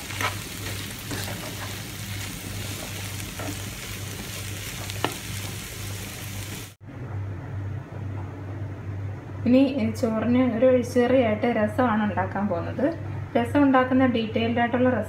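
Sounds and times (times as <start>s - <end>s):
wooden spatula stirring: 0.0s - 5.7s
vegetables sizzling in oil: 0.0s - 6.8s.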